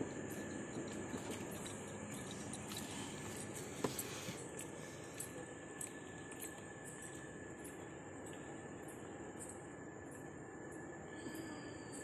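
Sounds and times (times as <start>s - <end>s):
thin high whine: 9.4s - 12.0s.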